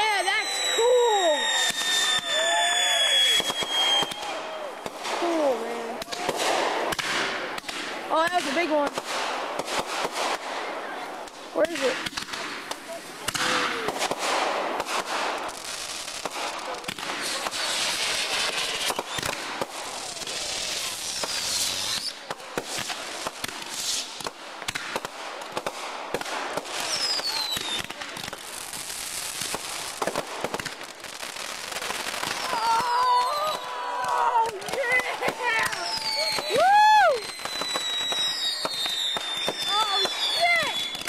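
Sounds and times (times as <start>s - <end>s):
descending firework whistles: 0.0s - 5.2s, 13.4s - 23.0s, 26.6s - 30.1s, 31.2s - 34.5s, 35.5s - 41.0s
fireworks bangs and crackles: 0.0s - 41.0s.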